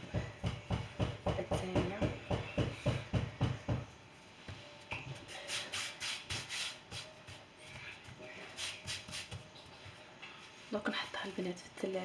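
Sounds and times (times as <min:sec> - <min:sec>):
hands patting dough: 0:04.4 - 0:10.5
hands rubbing dough on countertop: 0:05.2 - 0:11.4.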